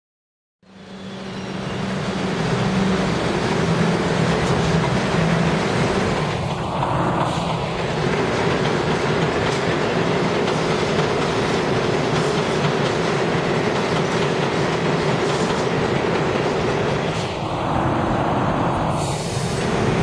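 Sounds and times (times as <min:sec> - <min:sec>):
subway train rumbling past: 0:00.6 - 0:20.0
wheels clicking over rail joints: 0:02.5 - 0:17.3.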